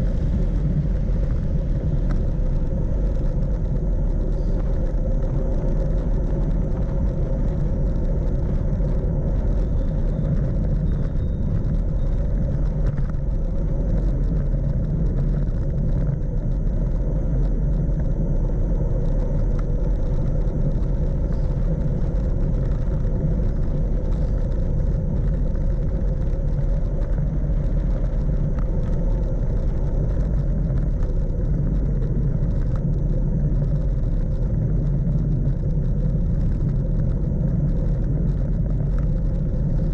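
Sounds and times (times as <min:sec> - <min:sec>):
tyres rumbling on asphalt: 0:00.0 - 0:39.9
wind buffeting microphone: 0:00.0 - 0:39.9.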